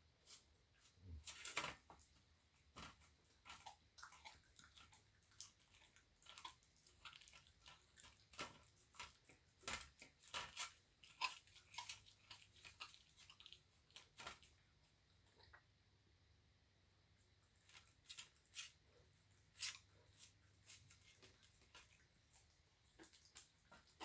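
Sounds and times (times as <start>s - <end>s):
animal crunching bones: 2.7s - 14.6s.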